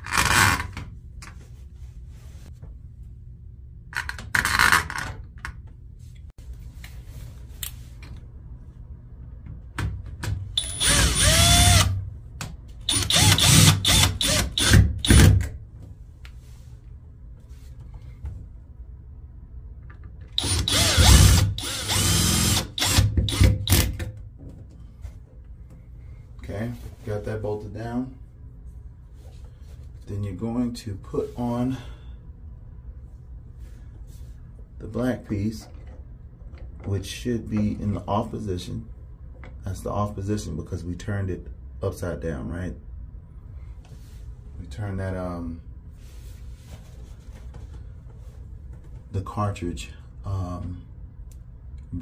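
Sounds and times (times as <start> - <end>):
cordless drill driving screws: 10.6 - 12.0, 12.9 - 15.3, 20.4 - 23.9.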